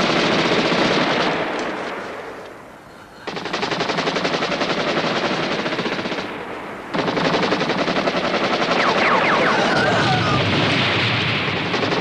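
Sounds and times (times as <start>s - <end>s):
automatic gunfire bursts: 0.0s - 1.6s, 3.2s - 9.7s.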